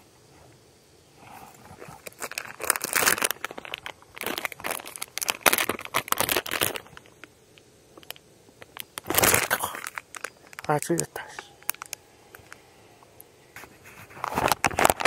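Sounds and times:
plastic packaging crinkling: 1.8 - 7.3, 8.0 - 12.6, 13.8 - 15.0.

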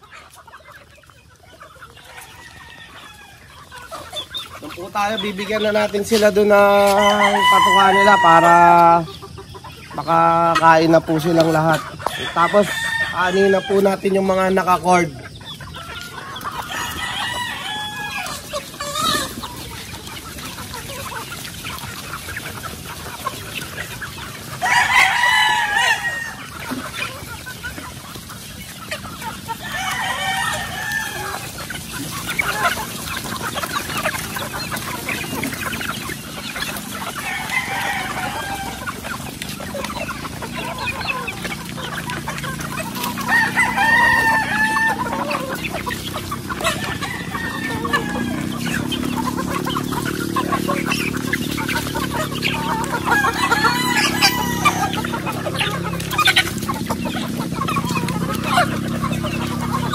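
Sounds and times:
chickens clucking: 0.0 - 59.9
pecking and scratching in dry leaves: 0.0 - 59.9
roosters crowing: 0.0 - 59.9.

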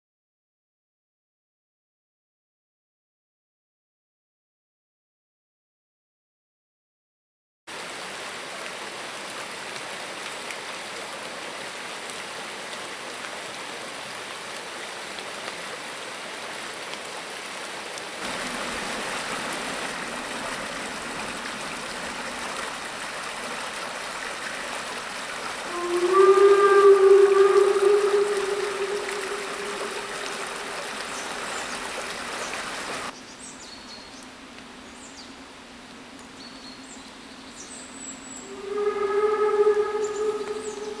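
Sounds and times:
stream rushing over stones: 7.7 - 33.2
steam locomotive whistle: 25.7 - 31.1, 38.5 - 41.0.

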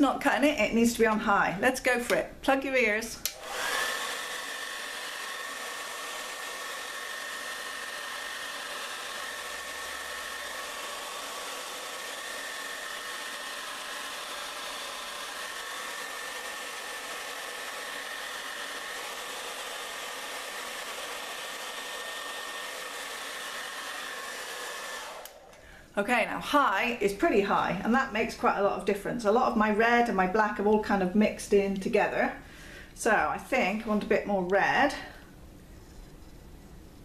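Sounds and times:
hair dryer blowing air: 2.7 - 25.7.

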